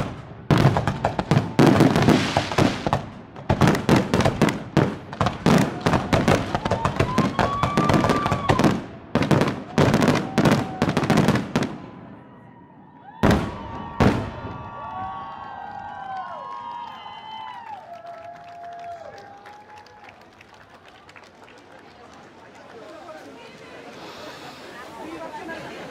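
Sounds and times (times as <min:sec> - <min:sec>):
fireworks bangs and crackle: 0:00.0 - 0:12.2, 0:13.2 - 0:15.3.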